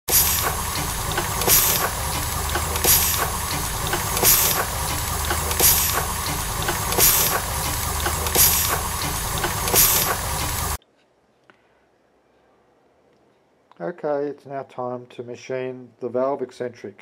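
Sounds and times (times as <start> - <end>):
exhaust steam hissing: 0.0 - 10.8
steam engine rumble: 0.0 - 10.8.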